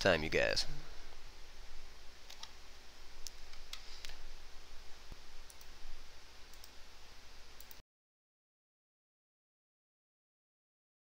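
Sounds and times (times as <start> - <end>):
faint steady hum: 0.0 - 7.8
computer mouse clicks: 2.3 - 2.6, 3.2 - 4.2, 5.5 - 5.8, 6.5 - 6.8, 7.6 - 7.8.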